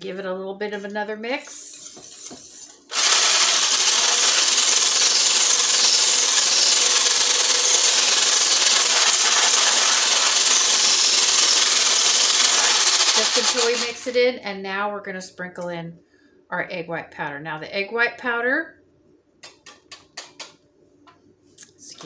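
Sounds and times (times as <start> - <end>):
stick blender whisking egg whites: 1.8 - 14.0.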